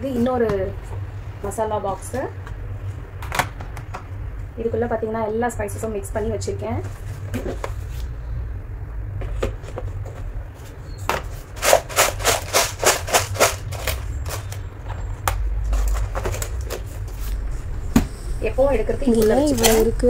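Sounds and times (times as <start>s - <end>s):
steady low hum: 0.0s - 20.0s
containers clicking and knocking: 11.6s - 14.5s.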